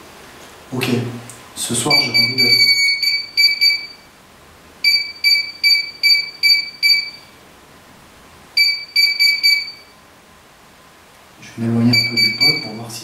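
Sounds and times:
quick high beeps: 1.9 - 4.0, 4.8 - 7.3, 8.6 - 9.9, 11.9 - 12.8.

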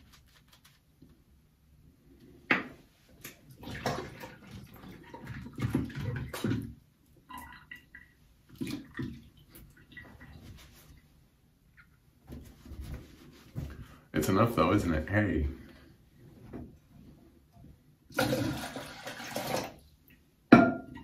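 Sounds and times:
water splashing in sink: 3.2 - 10.9, 18.1 - 19.9.

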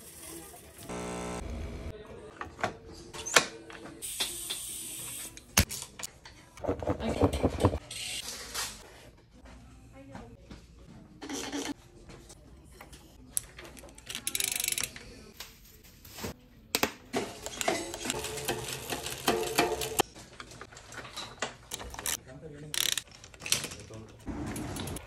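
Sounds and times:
mechanical clicks and handling: 13.4 - 15.0, 22.8 - 23.8.

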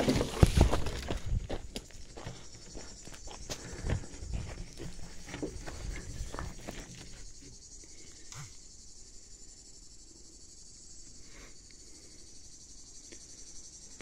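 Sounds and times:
footsteps on gravel: 0.0 - 7.3
insects chorus: 0.0 - 14.0.

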